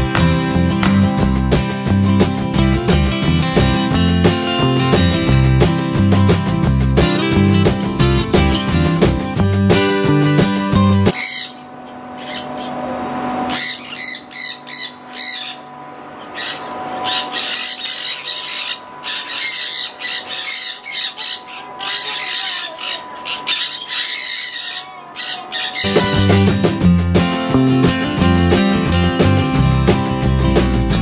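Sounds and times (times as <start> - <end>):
parrots squawking: 11.1 - 26.5.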